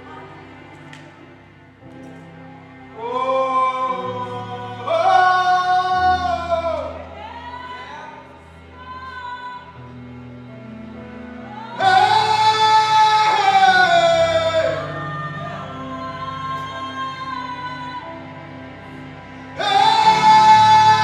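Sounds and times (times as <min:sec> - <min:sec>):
gospel choir singing: 0:02.6 - 0:08.3, 0:11.1 - 0:21.0.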